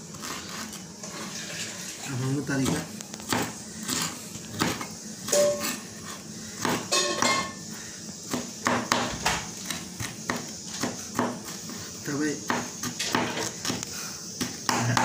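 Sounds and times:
knife chopping on plastic board: 2.6s - 5.8s, 6.6s - 7.3s, 8.3s - 11.6s, 12.5s - 13.8s, 14.4s - 15.0s.

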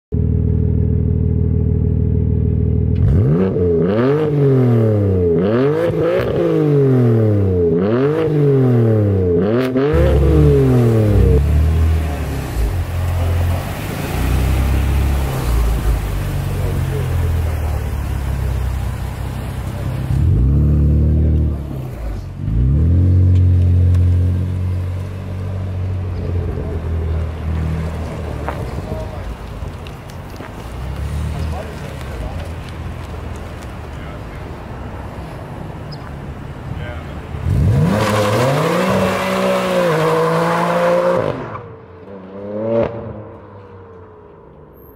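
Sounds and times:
car exhaust accelerating: 0.1s - 34.6s.

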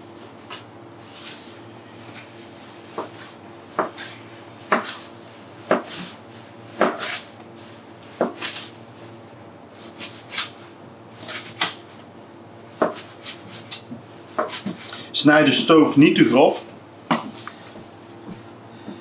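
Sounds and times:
knife cutting meat on board: 3.0s - 6.2s, 6.8s - 7.3s, 8.2s - 8.7s, 12.8s - 13.8s, 14.4s - 14.8s.

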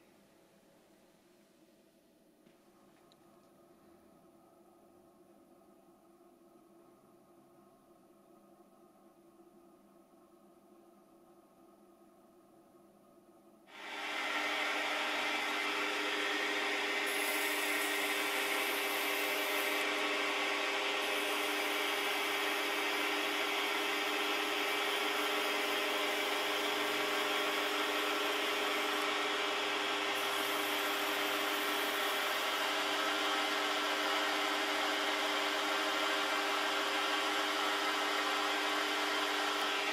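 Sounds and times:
lathe motor and gear hum: 13.8s - 39.9s
abrasive strip rubbing hiss: 17.0s - 19.8s.

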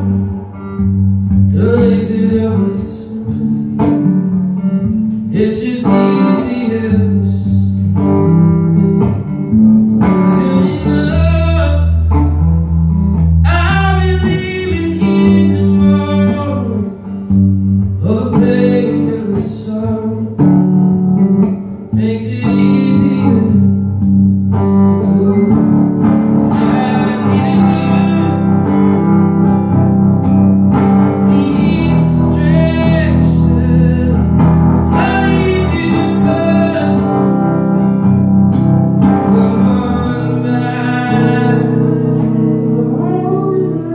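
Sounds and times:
man singing into a microphone: 0.0s - 0.6s, 1.5s - 4.0s, 5.3s - 8.5s, 10.2s - 12.1s, 13.4s - 17.3s, 18.0s - 20.6s, 21.8s - 23.9s, 24.7s - 29.4s, 31.1s - 37.8s, 39.0s - 43.9s
electric guitar: 0.0s - 43.9s.

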